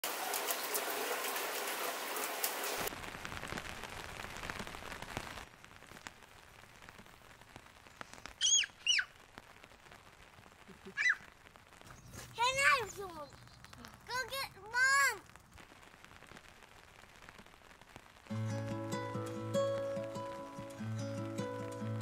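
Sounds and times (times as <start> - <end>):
heavy rain falling: 0.0 - 22.0
short falling bird call: 8.4 - 9.2
bird chirps: 13.2 - 13.8.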